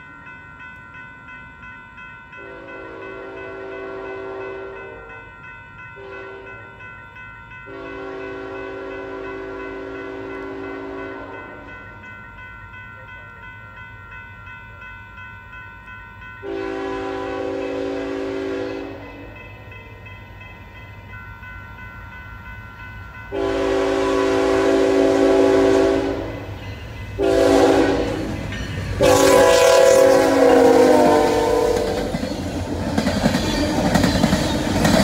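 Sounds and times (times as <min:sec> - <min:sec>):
train rumbling past: 0:00.0 - 0:35.0
locomotive air horn blasts: 0:02.4 - 0:05.2, 0:06.0 - 0:06.6, 0:07.7 - 0:11.7, 0:16.4 - 0:19.2, 0:23.3 - 0:26.5, 0:27.2 - 0:28.4, 0:29.0 - 0:32.1.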